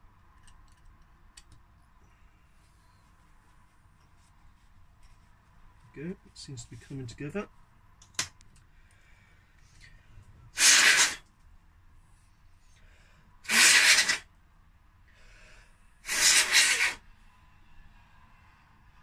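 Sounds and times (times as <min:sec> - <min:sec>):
hard puffs of breath: 0:12.6 - 0:14.3, 0:15.1 - 0:17.0.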